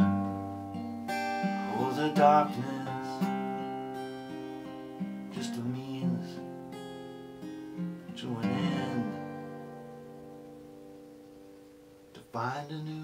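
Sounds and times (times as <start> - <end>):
acoustic guitar strummed slowly: 0.0 - 13.0
man singing softly: 1.5 - 3.4, 5.2 - 6.7, 8.1 - 9.6, 12.1 - 13.0.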